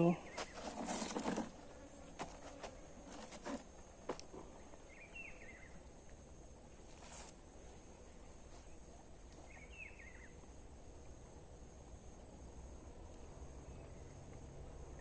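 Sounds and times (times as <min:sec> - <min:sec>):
insects droning: 0:00.0 - 0:15.0
short rustle: 0:00.3 - 0:03.7, 0:06.8 - 0:07.4.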